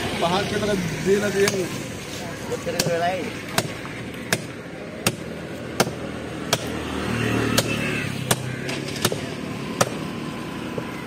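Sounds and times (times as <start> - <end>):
cleaver chopping fish on wood: 2.7 - 6.8, 7.5 - 10.0.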